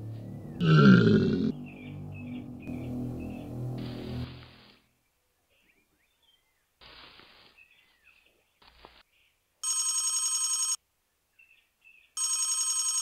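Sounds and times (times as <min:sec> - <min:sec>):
telephone ringing: 0:09.6 - 0:10.8, 0:12.2 - 0:13.0.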